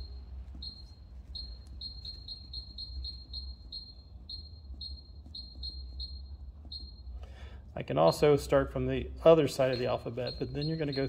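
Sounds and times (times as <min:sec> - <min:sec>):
low steady hum: 0:00.0 - 0:11.0
short high electronic beeps: 0:09.5 - 0:11.0.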